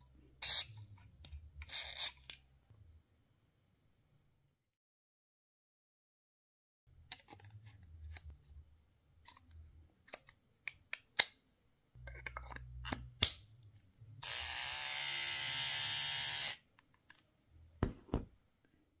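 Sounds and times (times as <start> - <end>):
electric shaver buzzing: 14.2 - 16.6.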